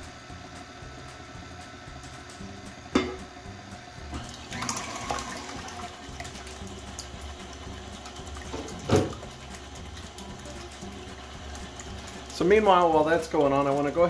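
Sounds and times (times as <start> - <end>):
stand mixer whisking: 4.0 - 14.0
egg whites sloshing in bowl: 4.2 - 14.0.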